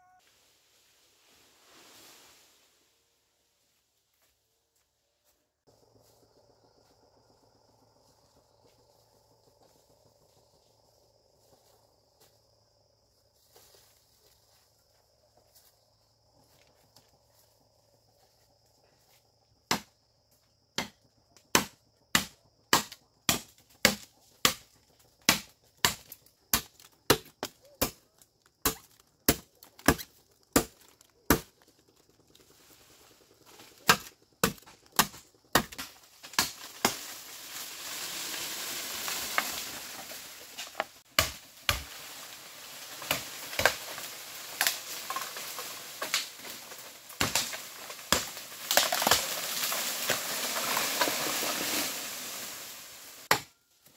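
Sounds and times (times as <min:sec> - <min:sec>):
rustling hiss: 0:00.2 - 0:03.9, 0:36.9 - 0:41.0, 0:49.2 - 0:53.3.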